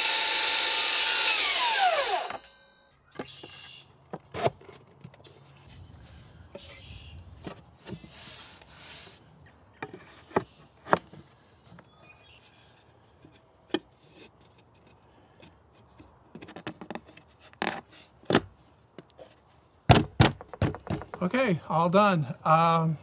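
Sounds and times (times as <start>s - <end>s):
scraping rub: 4.3s - 9.3s
wooden boards knocking and clicking: 16.3s - 18.5s, 19.9s - 21.2s.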